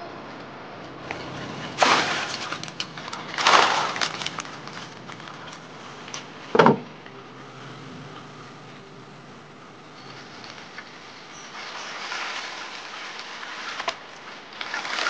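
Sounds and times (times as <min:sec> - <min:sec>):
wooden lid thudding: 0:06.6 - 0:06.9.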